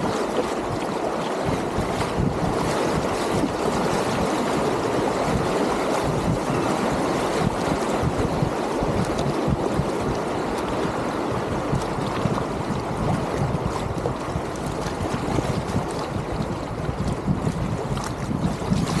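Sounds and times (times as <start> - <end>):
river rapids splashing over stones: 0.0 - 1.8
wind buffeting microphone: 0.0 - 19.0.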